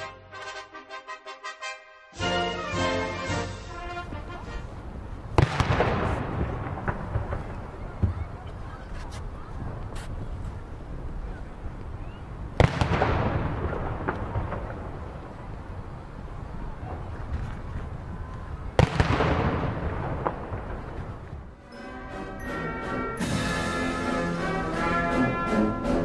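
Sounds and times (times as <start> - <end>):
artillery booms with rolling echo: 5.3 - 8.6, 12.6 - 15.4, 18.8 - 21.6.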